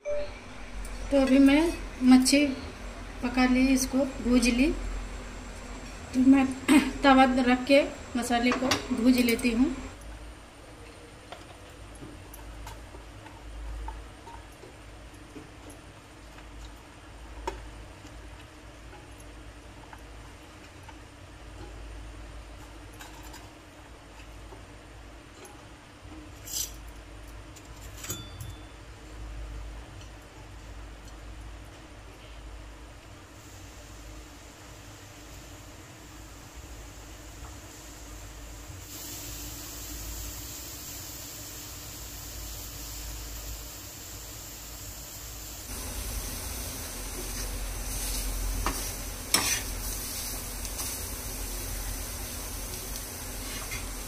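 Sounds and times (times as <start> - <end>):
low steady hum: 0.0 - 40.6
light sizzle: 0.0 - 54.0
metal spatula scraping a griddle: 47.4 - 51.0.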